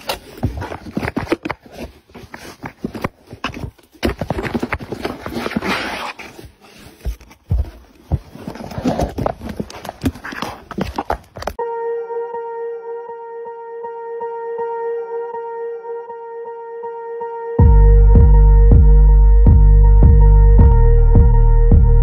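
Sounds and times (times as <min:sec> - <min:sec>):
scratching on cardboard: 0:00.0 - 0:11.6.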